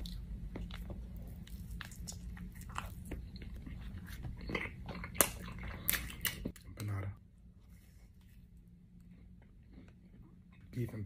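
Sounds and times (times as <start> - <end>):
mouth chewing pastry: 0.0 - 6.6
low steady hum: 0.0 - 11.0.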